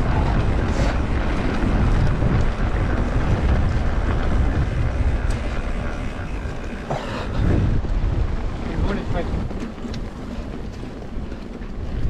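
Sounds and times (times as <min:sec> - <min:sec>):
bike rumbling over trail: 0:00.0 - 0:12.0
wind rush on microphone: 0:00.0 - 0:12.0.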